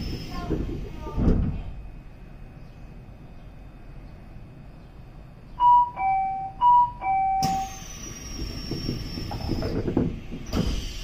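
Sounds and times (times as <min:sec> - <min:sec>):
two-tone door chime: 0:05.6 - 0:07.9
air hiss: 0:10.5 - 0:11.0.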